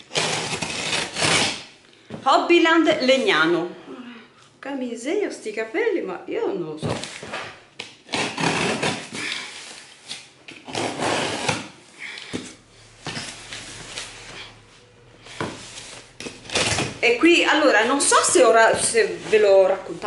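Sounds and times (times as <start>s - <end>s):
tape and cardboard tearing: 0.0s - 1.8s, 6.9s - 11.8s, 15.3s - 17.0s.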